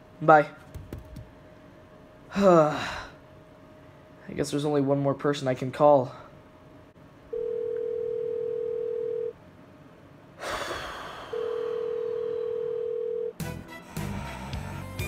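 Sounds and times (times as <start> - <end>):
telephone ringback tone: 7.3 - 9.3, 11.3 - 13.4.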